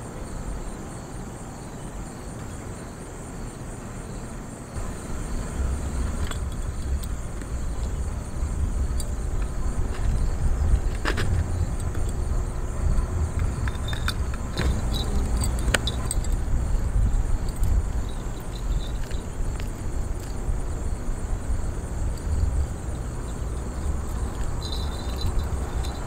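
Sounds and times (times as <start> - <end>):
wind buffeting microphone: 4.7 - 26.0
fishing gear clicking and knocking: 4.8 - 12.3, 13.3 - 20.5, 22.2 - 26.0.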